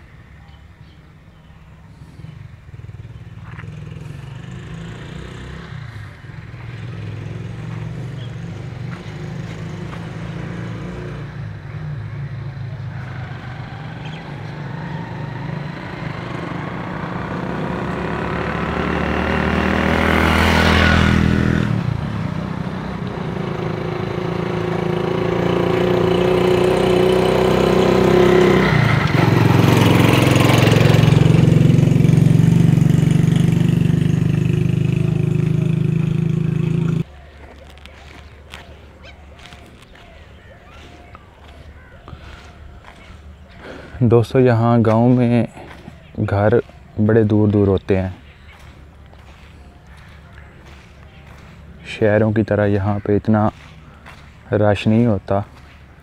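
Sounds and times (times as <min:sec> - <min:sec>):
motorcycle passing: 0:00.0 - 0:56.0
engine running steadily: 0:45.1 - 0:52.0.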